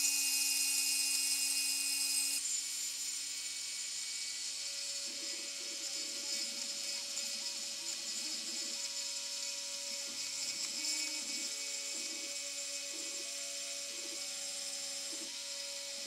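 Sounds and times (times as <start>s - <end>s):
stepper motor whining: 3.4s - 16.0s.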